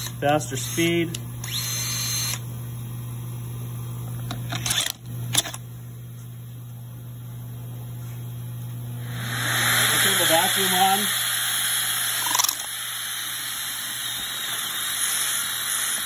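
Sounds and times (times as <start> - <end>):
dust extractor airflow hiss: 0.0 - 2.3, 8.9 - 16.0.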